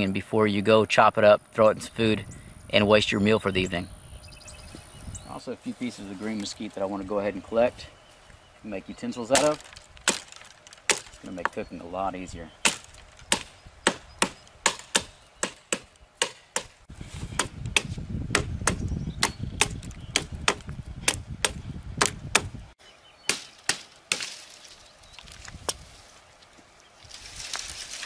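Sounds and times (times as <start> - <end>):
branch rustling: 5.5 - 17.6, 23.3 - 28.0
knife chopping branch: 9.3 - 11.6, 12.6 - 22.5, 23.3 - 24.8.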